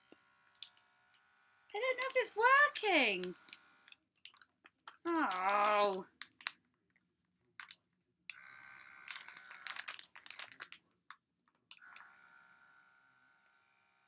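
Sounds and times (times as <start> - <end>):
plastic bag crinkling: 1.8 - 3.5, 4.2 - 6.6, 7.6 - 7.8, 9.0 - 11.2
vacuum pump whirring with whine: 11.8 - 14.0.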